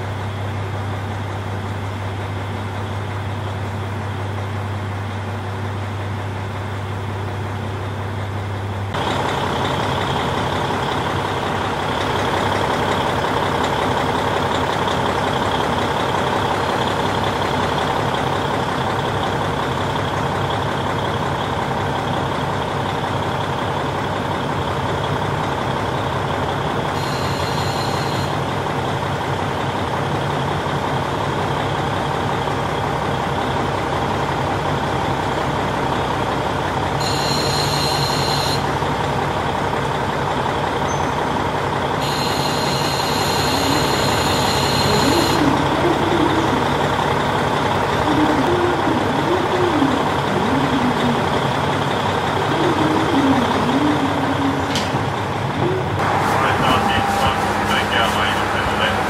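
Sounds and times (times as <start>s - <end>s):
diesel railcar engine idling: 0.0s - 59.0s
high electronic beeps: 27.0s - 28.4s, 37.0s - 38.6s, 42.0s - 46.6s.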